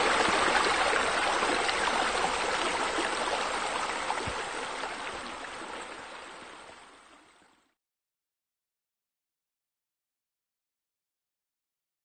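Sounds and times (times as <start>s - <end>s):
running water trickling: 0.0s - 7.7s.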